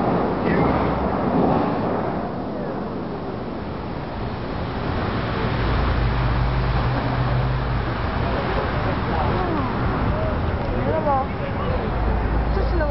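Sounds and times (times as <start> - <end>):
fountain water spray falling: 0.0 - 12.9.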